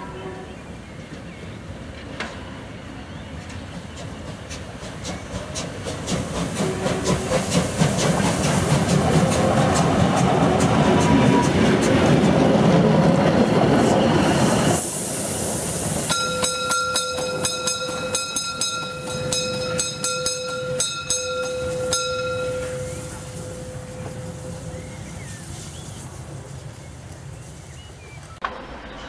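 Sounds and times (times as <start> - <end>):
steam locomotive whistle: 0.0 - 0.7, 6.6 - 7.5, 16.1 - 25.4
steam exhaust beats: 3.5 - 26.0.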